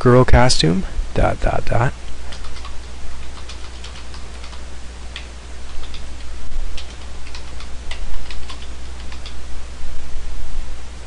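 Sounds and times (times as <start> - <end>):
steady hiss and low hum: 0.0 - 11.0
keyboard typing: 2.3 - 9.4.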